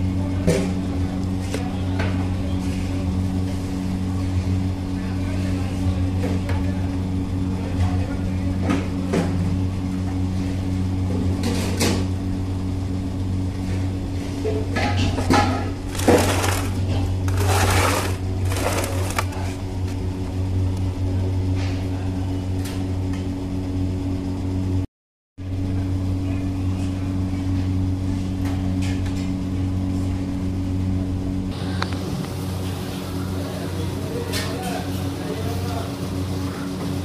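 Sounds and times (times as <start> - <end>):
low machine hum: 0.0 - 37.0
knife scraping on metal tray: 17.3 - 19.4.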